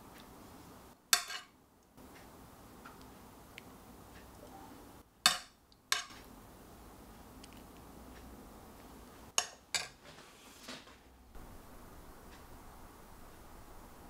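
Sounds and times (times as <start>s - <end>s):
metal spoon clinking on plate: 1.2s - 1.5s.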